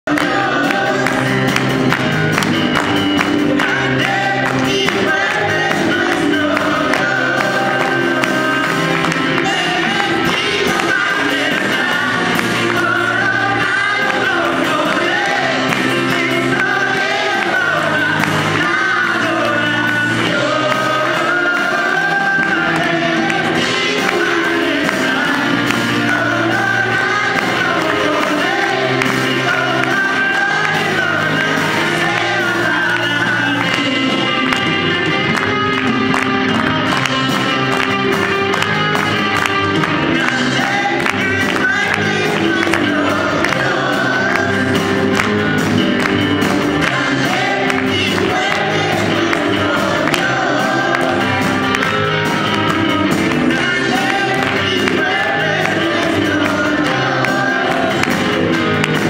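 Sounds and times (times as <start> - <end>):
bass line: 0.0 - 59.0
electric guitar: 0.0 - 59.0
keyboard: 0.0 - 59.0
children singing: 0.1 - 1.9, 3.3 - 34.9, 39.9 - 45.2, 46.5 - 59.0.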